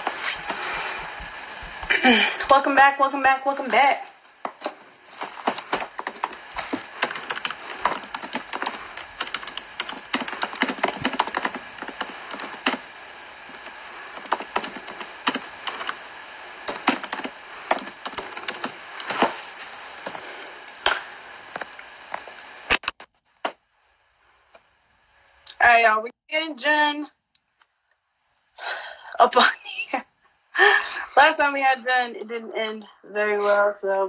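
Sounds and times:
rapid clicking and tapping: 0:00.0 - 0:02.7, 0:05.4 - 0:16.0, 0:16.6 - 0:19.3.

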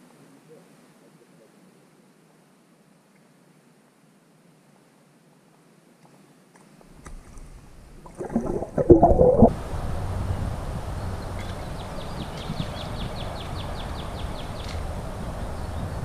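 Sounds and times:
muffled underwater thumps and sloshing: 0:07.0 - 0:09.5.

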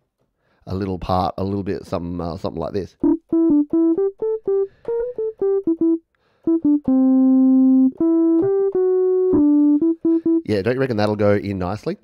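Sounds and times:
electric piano melody: 0:03.0 - 0:10.8.

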